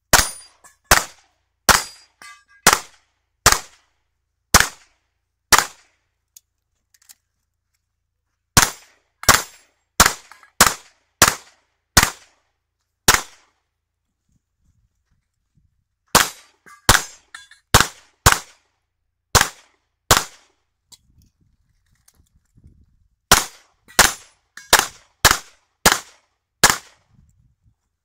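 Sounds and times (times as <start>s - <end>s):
pistol shots with echo: 0.1s - 3.8s, 4.5s - 4.9s, 5.5s - 5.9s, 8.6s - 12.3s, 13.1s - 13.5s, 16.1s - 18.6s, 19.3s - 20.5s, 23.3s - 27.0s.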